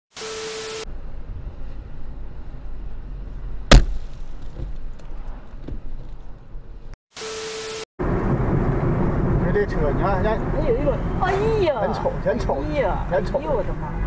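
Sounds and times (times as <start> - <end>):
static noise burst: 0.1 - 0.9, 7.1 - 7.9
car road and engine rumble: 0.3 - 7.0, 8.0 - 14.0
sharp loud bang: 3.7 - 4.2.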